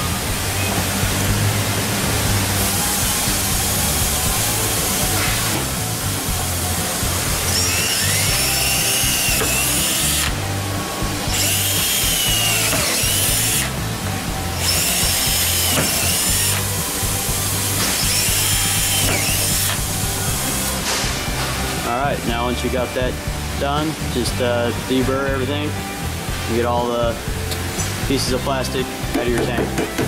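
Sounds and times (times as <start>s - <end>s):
cordless drill whining through plastic: 7.4s - 10.4s, 11.2s - 13.8s, 14.5s - 16.7s, 17.3s - 20.8s.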